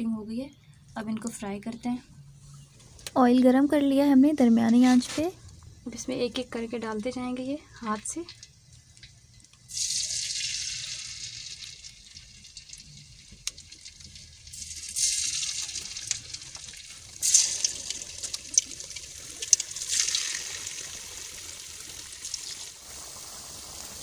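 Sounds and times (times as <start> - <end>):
oil crackles and pops: 4.6 - 24.0
food sizzling in hot oil: 5.0 - 24.0.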